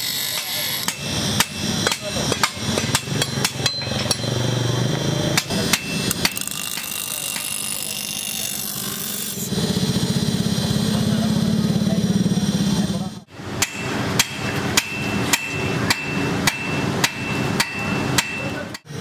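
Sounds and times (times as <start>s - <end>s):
knife on grinding wheel: 0.0s - 9.7s
sharp knocks: 13.6s - 18.5s.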